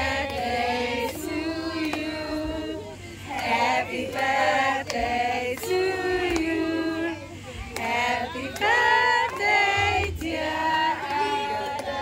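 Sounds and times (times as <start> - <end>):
group of voices singing: 0.0 - 12.0.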